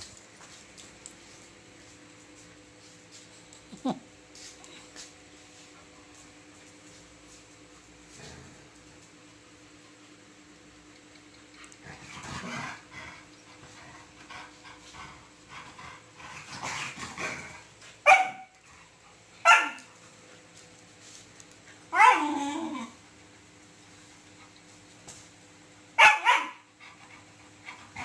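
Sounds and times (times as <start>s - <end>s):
dogs scuffling and growling: 0.0s - 9.6s, 11.7s - 25.4s
dog barking: 18.1s - 18.5s, 19.4s - 19.9s, 21.9s - 22.3s, 26.0s - 26.6s.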